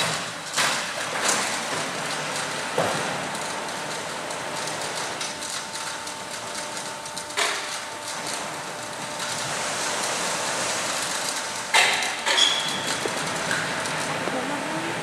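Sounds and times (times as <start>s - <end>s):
conveyor machine din: 7.4s - 15.0s.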